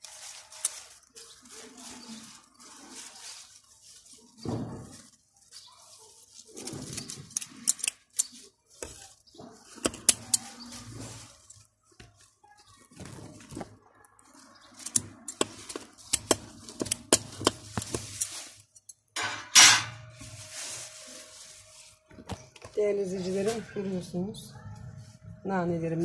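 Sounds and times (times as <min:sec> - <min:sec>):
leaves rustling: 0:00.0 - 0:18.9, 0:20.0 - 0:26.0
scissors snipping stems: 0:14.8 - 0:19.0.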